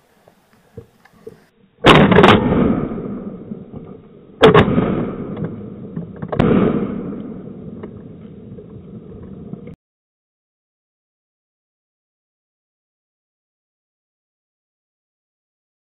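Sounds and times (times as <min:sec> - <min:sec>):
shotgun shots echoing: 0:01.8 - 0:08.0.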